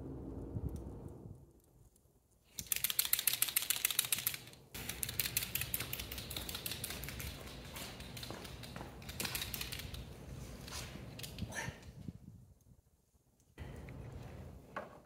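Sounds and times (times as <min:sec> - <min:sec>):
rapid mechanical clicking: 0:02.5 - 0:10.2.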